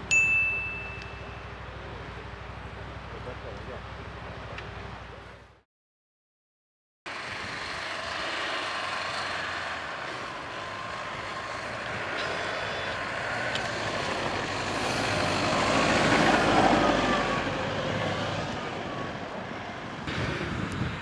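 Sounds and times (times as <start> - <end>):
vehicle engine driving past: 7.1 - 20.6
tyres in deep snow: 7.1 - 21.0.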